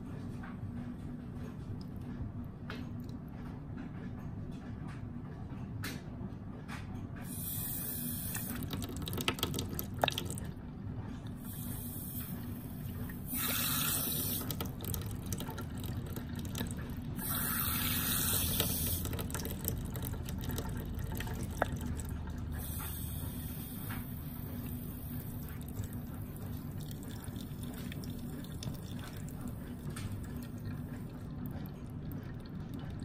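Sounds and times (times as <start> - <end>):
toilet flushing water rushing: 11.4 - 33.0.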